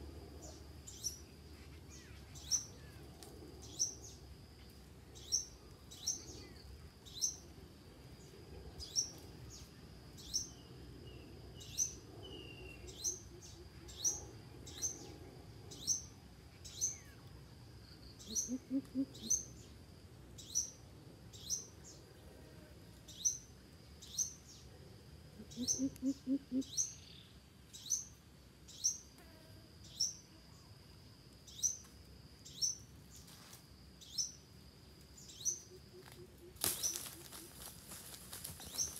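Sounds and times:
bird giving deep hoots: 0:18.2 - 0:19.5, 0:25.4 - 0:26.9.

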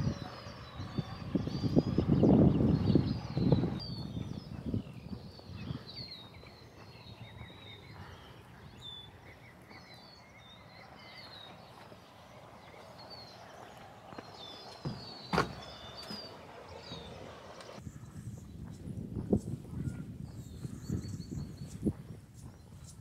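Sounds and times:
small birds chirping: 0:00.0 - 0:23.0
footsteps: 0:11.5 - 0:17.8.

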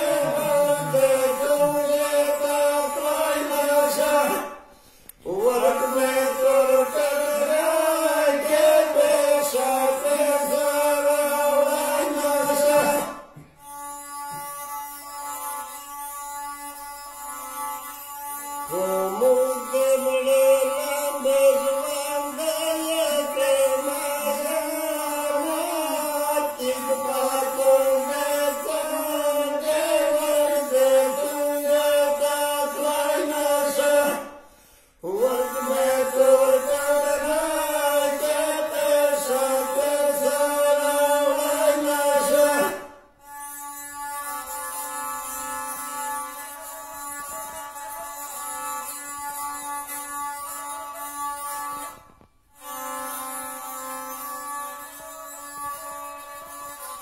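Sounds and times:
bowed fiddle melody: 0:00.0 - 0:04.5, 0:05.3 - 0:34.3, 0:35.0 - 0:57.0.

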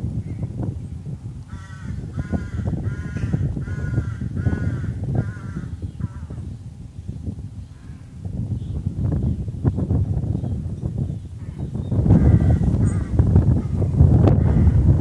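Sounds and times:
crow cawing: 0:01.5 - 0:06.4, 0:12.2 - 0:13.2.

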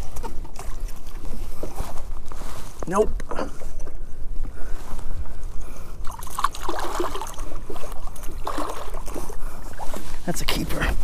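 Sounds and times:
water splashing and sloshing: 0:00.0 - 0:02.8, 0:06.0 - 0:11.0
fish thrashing in water: 0:06.0 - 0:09.9.

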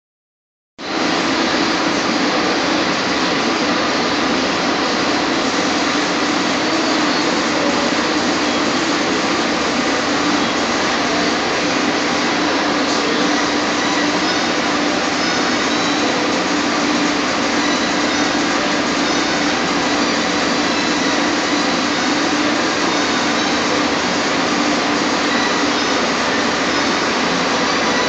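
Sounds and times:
electric fan running: 0:00.8 - 0:28.0.

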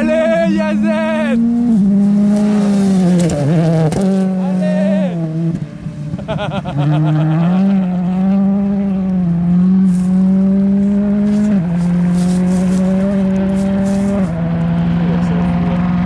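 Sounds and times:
rally car engine at high revs: 0:00.0 - 0:16.0
gravel spraying from tyres: 0:11.2 - 0:14.3.

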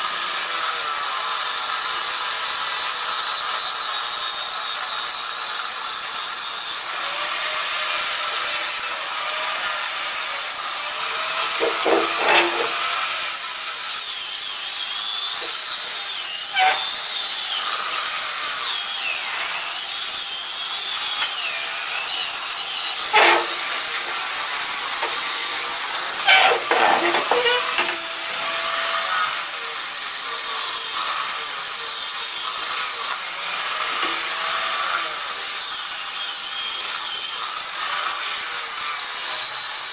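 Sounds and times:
wood sanding with squeaks: 0:10.6 - 0:39.5.

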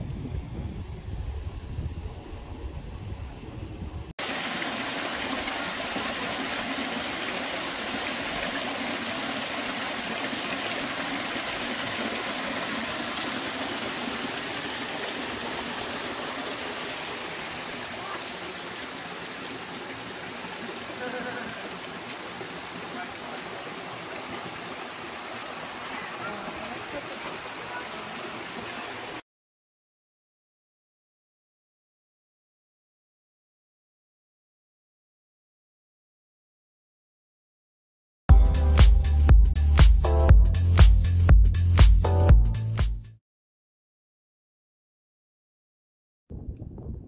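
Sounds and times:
waterfall rushing into pool: 0:04.2 - 0:29.2.

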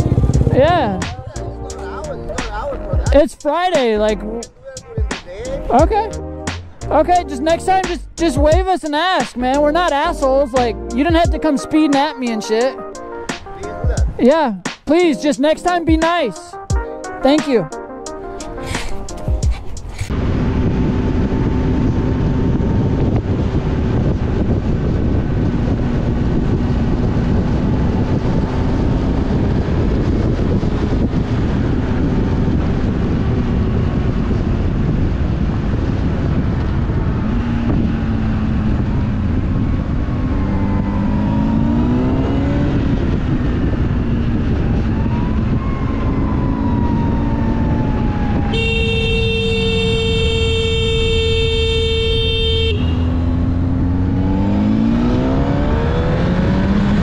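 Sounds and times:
motorcycle engine accelerating: 0:00.0 - 0:04.5, 0:18.6 - 0:57.0
wind noise: 0:00.0 - 0:12.7, 0:13.3 - 0:16.3, 0:18.3 - 0:57.0
vehicle horn blowing: 0:48.5 - 0:53.2.

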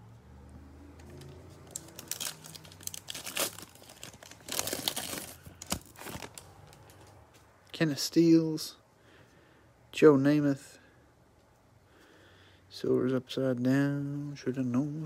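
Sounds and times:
foil wrapper tearing and crinkling: 0:01.6 - 0:06.9.

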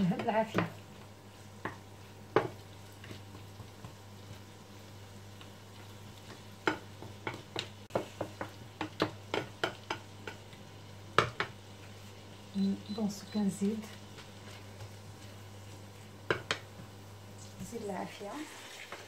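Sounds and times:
wooden spatula tapping frying pan: 0:00.0 - 0:04.6, 0:05.3 - 0:11.6, 0:16.2 - 0:17.0.

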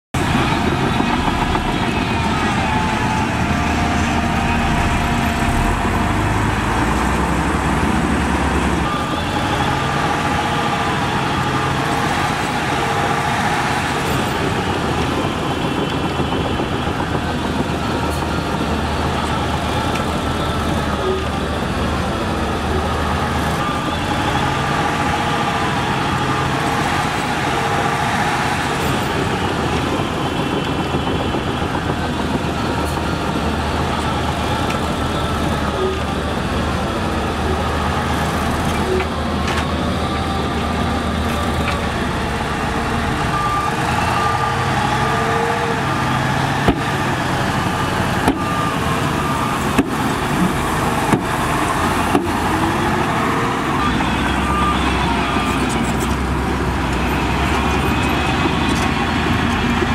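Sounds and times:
bulldozer diesel engine: 0:00.1 - 0:59.9.

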